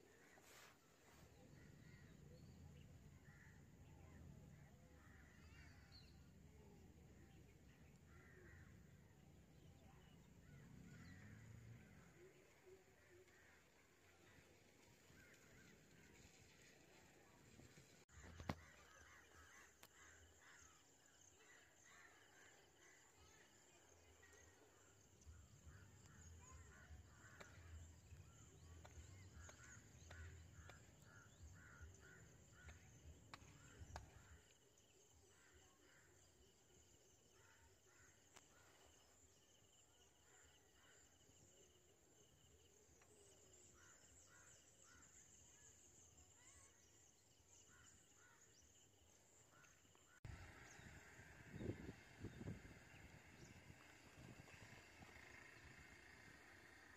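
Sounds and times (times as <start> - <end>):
birds chirping: 18.1 - 56.7.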